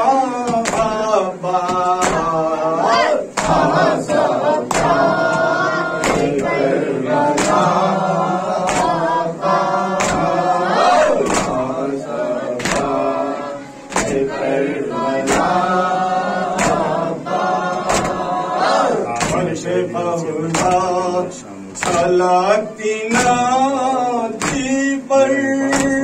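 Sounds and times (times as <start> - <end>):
men chanting in chorus: 0.0 - 26.0
chest-beating slaps: 0.5 - 7.8, 8.6 - 9.1, 9.9 - 11.7, 12.6 - 13.0, 13.9 - 14.4, 15.2 - 15.6, 16.6 - 17.0, 17.8 - 18.3, 19.1 - 19.5, 21.8 - 22.2, 24.4 - 24.8.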